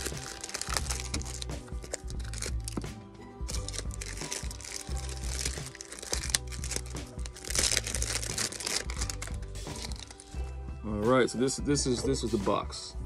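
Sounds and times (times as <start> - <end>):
packaging crinkling and rustling: 0.0 - 2.9, 3.5 - 10.4
background music with bass line: 0.0 - 13.0.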